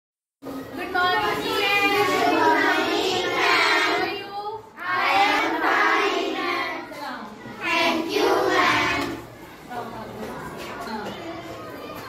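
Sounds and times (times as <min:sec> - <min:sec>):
children singing in chorus: 0:01.2 - 0:06.9, 0:07.6 - 0:09.2.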